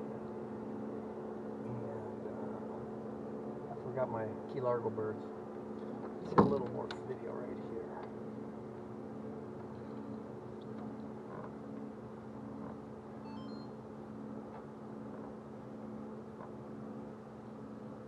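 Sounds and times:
outboard motor idling: 0.0 - 18.0
faint high chirps: 13.2 - 13.8.

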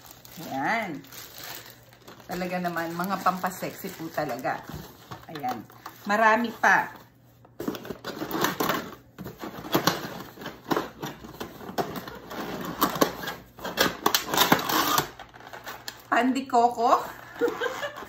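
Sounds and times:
plastic container crackling: 0.0 - 7.0.

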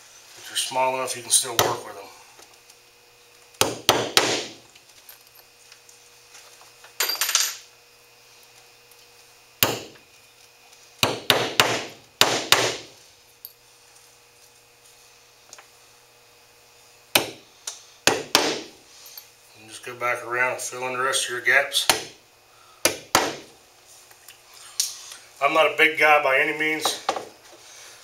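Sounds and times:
hammer striking nails into wood: 3.6 - 4.6, 9.6 - 10.0, 11.0 - 12.9, 17.1 - 17.4, 18.1 - 18.7, 22.8 - 23.5.

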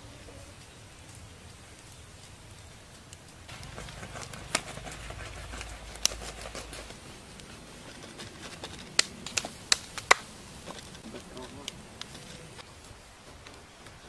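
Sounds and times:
roasted meat skin crackling: 0.0 - 14.0
sharp snaps: 0.6 - 7.5, 8.8 - 12.4.

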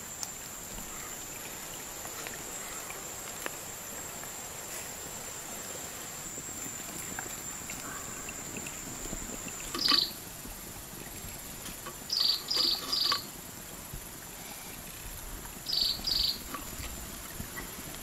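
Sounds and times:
loud pulsing insect chirps: 0.0 - 10.3, 12.0 - 13.2, 15.6 - 16.5
insects buzzing: 0.0 - 18.0.

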